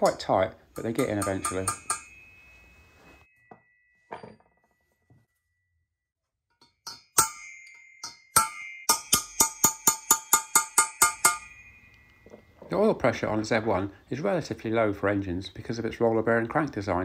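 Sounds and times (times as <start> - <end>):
hammer striking metal punch: 0.8 - 2.3, 6.6 - 12.4.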